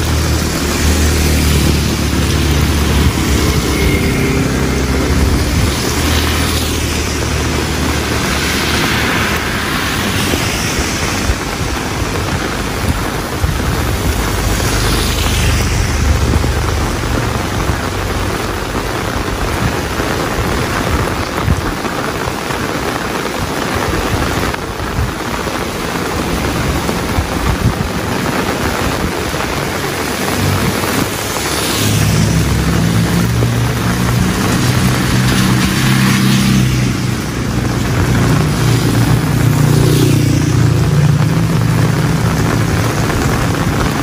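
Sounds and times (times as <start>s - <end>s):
low rumble: 0.0s - 20.0s
rain falling: 0.0s - 44.0s.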